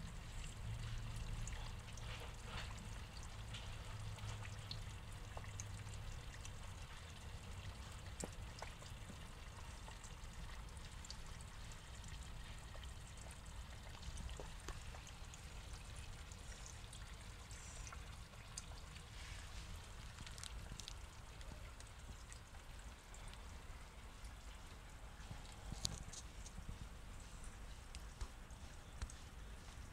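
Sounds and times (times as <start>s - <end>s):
water trickling in pond: 0.0s - 29.9s
soft clicks and ticks: 19.8s - 23.6s, 24.2s - 29.8s.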